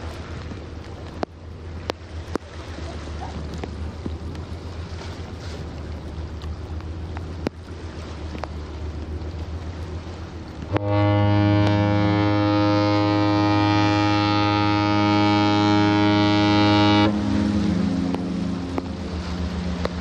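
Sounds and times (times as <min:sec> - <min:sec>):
low steady hum: 0:00.0 - 0:20.0
ship's horn deep blast: 0:09.8 - 0:20.0.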